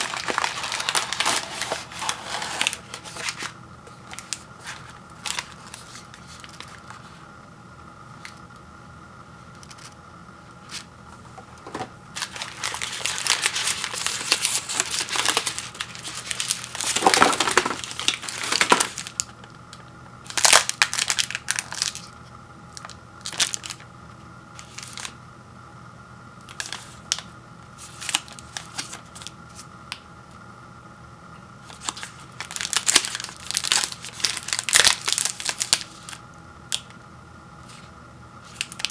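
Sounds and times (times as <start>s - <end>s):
plastic wrappers crinkling: 0.0s - 7.2s, 12.2s - 23.9s, 24.6s - 25.2s, 26.5s - 29.3s, 31.6s - 36.9s, 37.6s - 38.9s.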